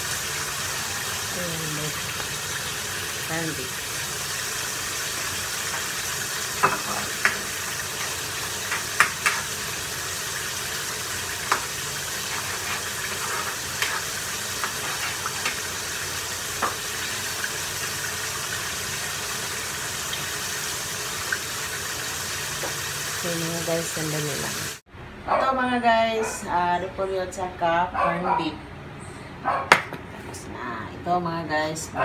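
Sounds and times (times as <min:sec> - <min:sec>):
food sizzling in a wok: 0:00.0 - 0:24.8.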